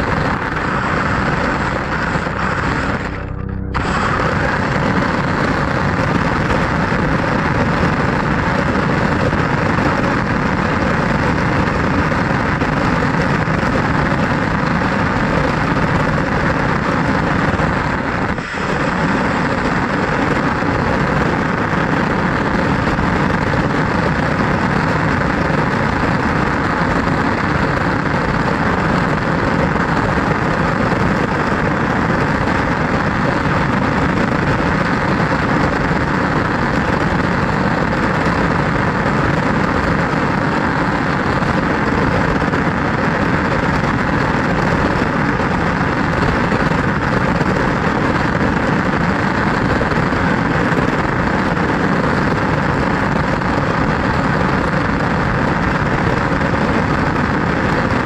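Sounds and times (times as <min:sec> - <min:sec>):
rc car mechanical noise: 0:00.0 - 0:54.5.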